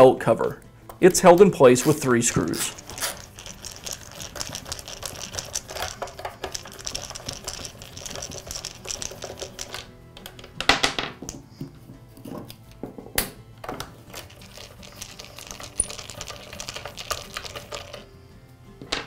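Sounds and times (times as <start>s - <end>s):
ratcheting screwdriver clicking: 2.6s - 10.4s.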